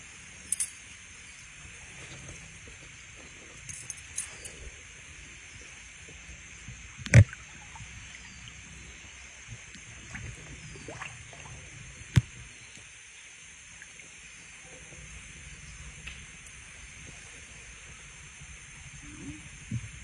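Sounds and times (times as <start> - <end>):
wading through shallow stream: 1.6 - 12.6.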